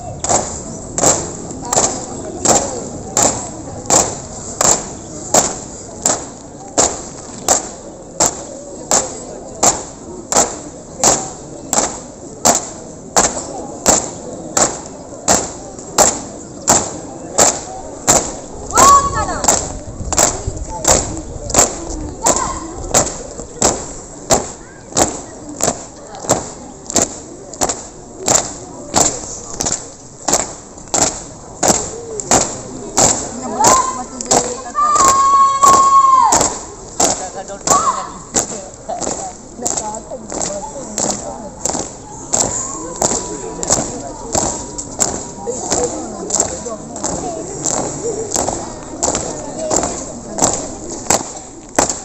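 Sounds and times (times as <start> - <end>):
marching beat thumps: 0.0 - 52.0.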